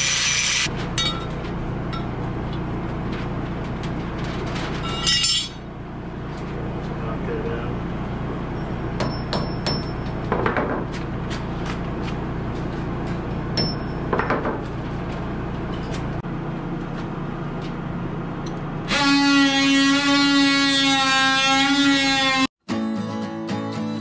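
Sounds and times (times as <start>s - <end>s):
steady low hum: 0.6s - 20.5s
acoustic guitar music: 22.7s - 24.0s.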